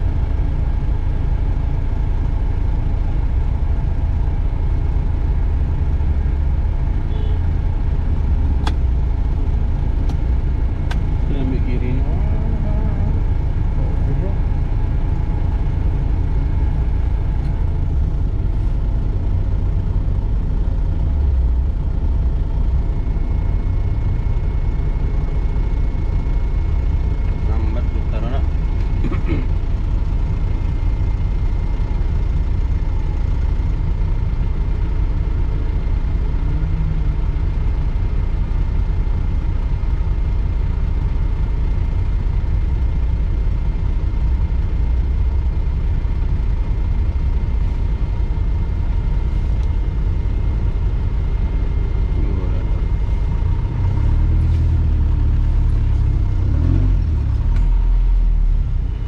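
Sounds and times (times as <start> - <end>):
engine low rumble: 0.0 - 59.0.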